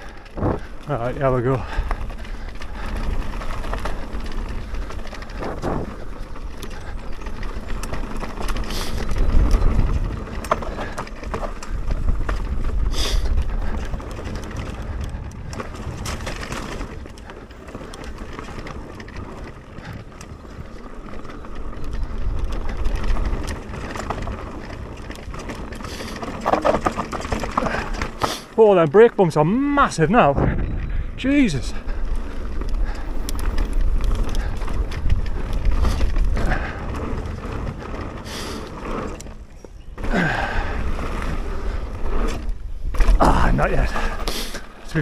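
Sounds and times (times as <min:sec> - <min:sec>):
wind rumble on microphone: 0:00.0 - 0:28.2, 0:29.9 - 0:44.2
bike chain and frame rattling: 0:00.0 - 0:45.0
bike tyres rolling over dirt: 0:00.0 - 0:45.0
knocks from rough ground: 0:00.3 - 0:00.8, 0:05.3 - 0:06.0, 0:25.4 - 0:28.4, 0:30.2 - 0:31.2.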